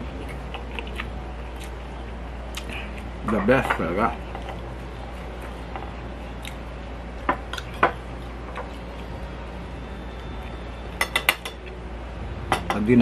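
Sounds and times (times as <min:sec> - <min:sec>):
soft eating clicks: 0:00.2 - 0:04.7, 0:05.8 - 0:06.7
low hum: 0:04.1 - 0:13.0.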